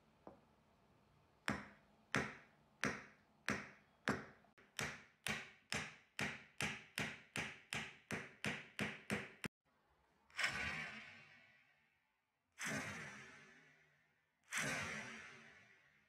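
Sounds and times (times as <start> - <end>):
hammer striking wooden board: 1.5 - 9.5.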